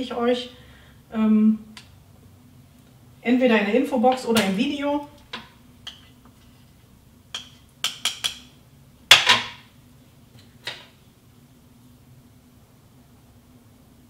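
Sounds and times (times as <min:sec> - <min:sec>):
metal spoon tapping metal bowl: 0:07.4 - 0:08.5.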